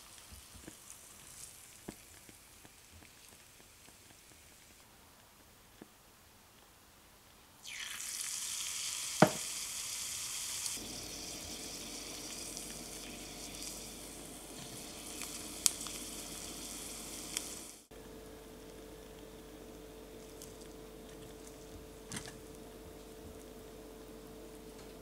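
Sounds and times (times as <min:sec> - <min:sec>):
leaf sizzling in hot oil: 0:00.0 - 0:04.8, 0:07.6 - 0:17.9.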